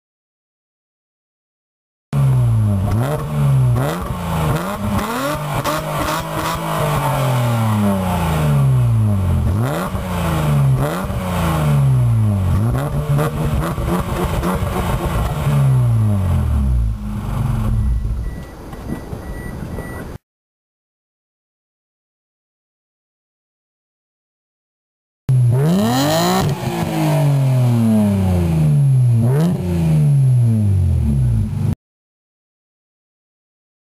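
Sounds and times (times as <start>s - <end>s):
car engine revving: 2.2s - 19.0s, 25.3s - 31.7s.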